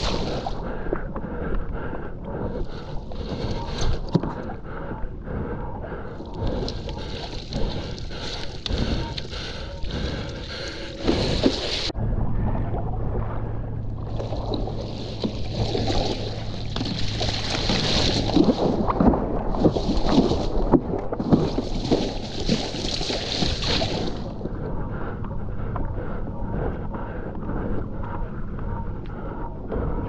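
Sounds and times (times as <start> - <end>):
wind rumble on microphone: 0.0 - 30.0
water splashing against board: 14.1 - 24.3.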